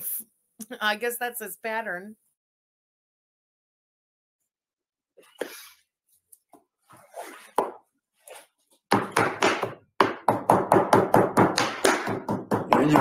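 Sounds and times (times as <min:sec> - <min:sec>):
knife chopping meat on wooden board: 0:08.9 - 0:13.0.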